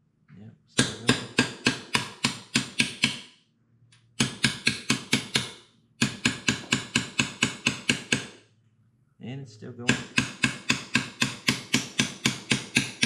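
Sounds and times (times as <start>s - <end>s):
hammer tapping metal: 0.8s - 3.3s, 4.2s - 8.4s, 9.8s - 13.0s.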